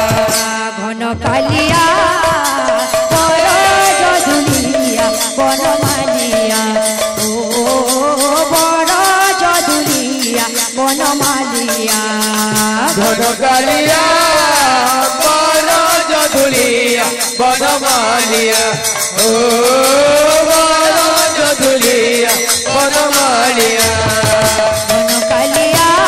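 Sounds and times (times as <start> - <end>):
hand cymbals: 1.5 - 26.0
barrel drums: 12.4 - 26.0.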